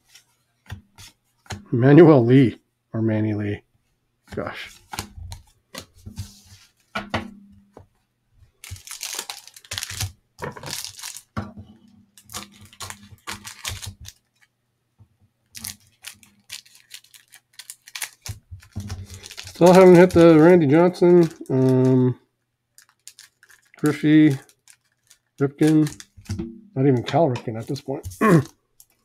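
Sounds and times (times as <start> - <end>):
cellophane wrapper tearing and crinkling: 8.5 - 11.4, 12.1 - 14.5, 15.5 - 22.1, 22.7 - 26.3, 27.5 - 29.0.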